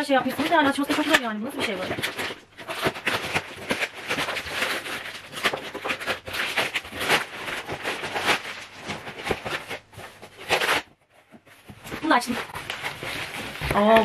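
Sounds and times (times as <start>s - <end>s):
plastic film crinkling: 0.0s - 14.0s.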